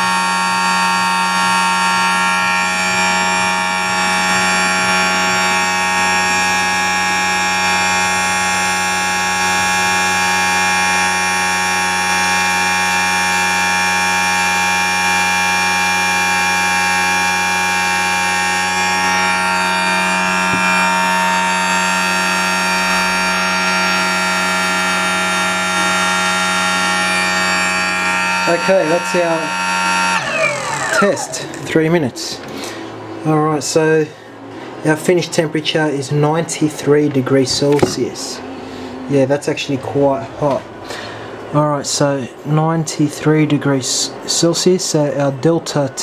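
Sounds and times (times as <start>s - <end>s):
electric motor whine: 0.0s - 31.6s.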